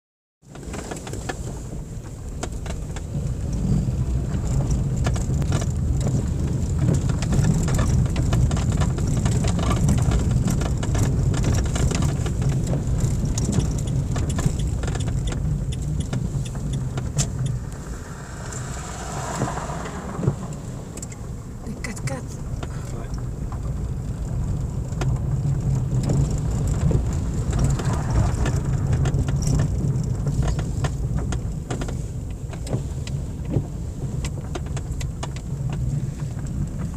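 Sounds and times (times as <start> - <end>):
engine and tyre rumble: 0.4 - 36.9
stones clicking and interior rattles: 4.3 - 17.8.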